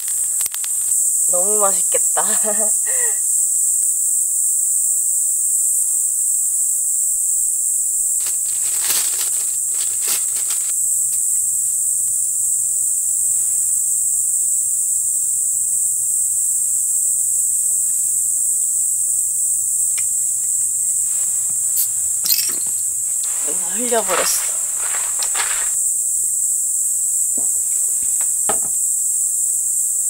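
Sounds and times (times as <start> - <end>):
high-pitched insect chorus: 0.0 - 30.0
rustling handling noises: 8.2 - 11.4, 21.0 - 25.8.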